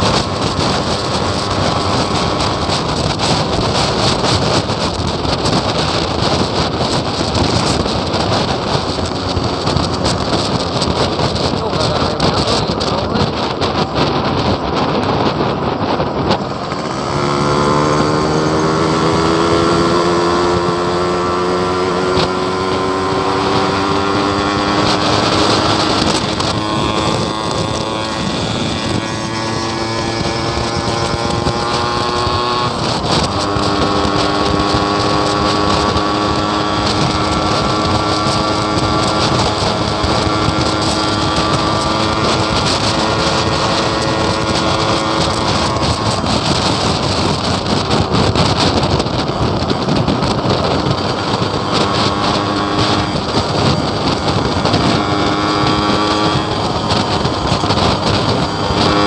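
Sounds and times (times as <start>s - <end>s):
motorcycle engine: 0.0s - 59.0s
person talking: 11.4s - 13.8s.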